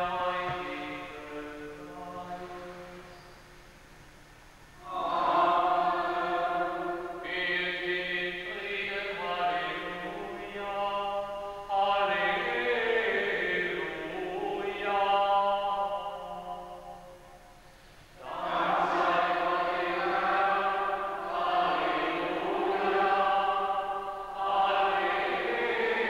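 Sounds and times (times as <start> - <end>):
liturgical chant: 0.0 - 3.4, 4.8 - 17.6, 18.2 - 26.0.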